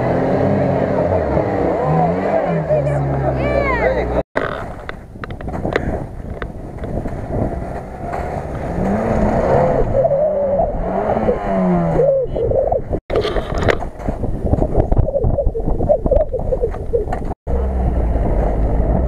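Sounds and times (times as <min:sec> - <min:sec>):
suv engine revving: 0:00.0 - 0:04.2, 0:07.0 - 0:12.7, 0:17.5 - 0:19.0
knocks and rattles: 0:04.4 - 0:09.1
engine running under load: 0:17.5 - 0:19.0.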